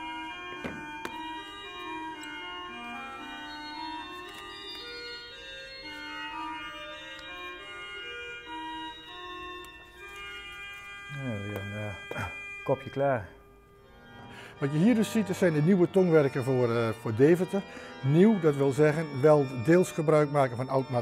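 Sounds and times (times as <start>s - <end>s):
organ music: 0.0s - 21.0s
light knocks: 0.6s - 1.3s.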